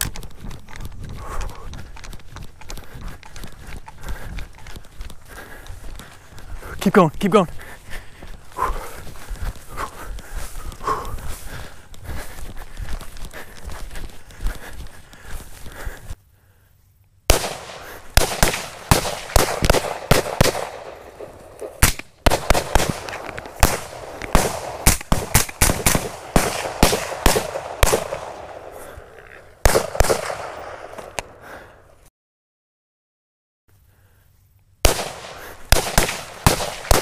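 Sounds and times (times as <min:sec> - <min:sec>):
rapid rifle fire: 0:17.3 - 0:28.8, 0:29.6 - 0:31.0, 0:34.8 - 0:37.0.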